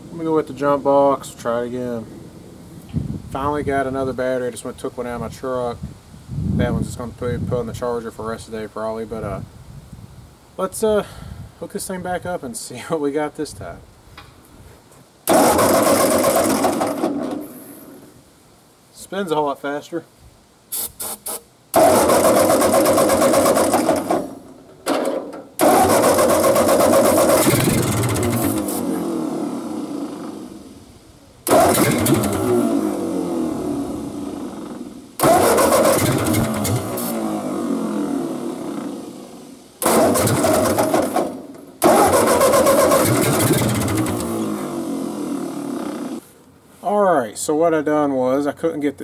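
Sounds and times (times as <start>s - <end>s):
short noises: 15.2s - 18.2s, 20.7s - 30.7s, 31.4s - 37.9s, 39.8s - 46.5s
starter cranking tractor engine: 15.3s - 17.6s, 21.7s - 28.8s, 31.4s - 32.7s, 34.5s - 37.2s, 39.8s - 44.5s.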